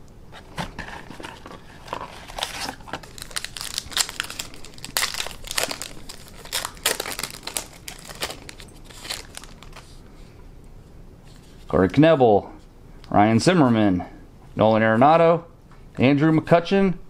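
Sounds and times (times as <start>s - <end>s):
foil wrapper crinkling and tearing: 0.7s - 10.0s.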